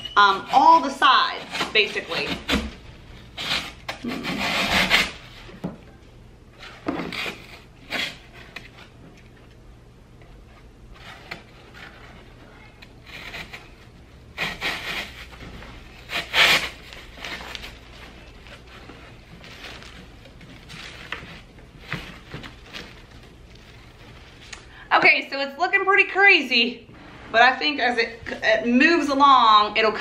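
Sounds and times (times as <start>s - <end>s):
artificial flowers rustling: 14.8s - 24.8s.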